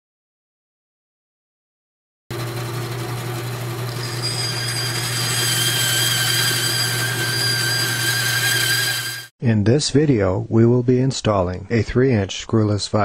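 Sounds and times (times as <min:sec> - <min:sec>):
high machine whine: 0:02.3 - 0:09.3
motor-driven machine humming: 0:02.3 - 0:09.3.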